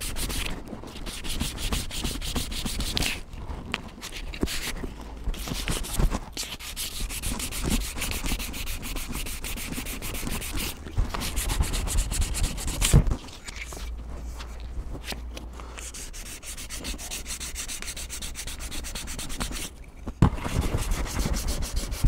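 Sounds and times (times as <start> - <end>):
sandpaper rubbing on wood: 0.0 - 3.2, 5.4 - 13.2, 15.8 - 19.8, 20.4 - 22.0.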